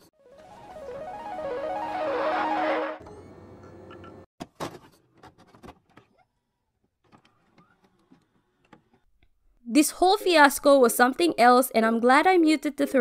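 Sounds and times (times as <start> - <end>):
guitar music: 0.3 - 3.0.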